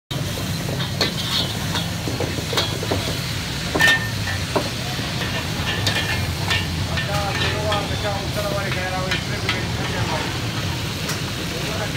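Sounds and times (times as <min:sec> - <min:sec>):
food sizzling: 0:00.1 - 0:11.9
metal utensil scraping a pan: 0:00.8 - 0:04.5, 0:05.1 - 0:08.0.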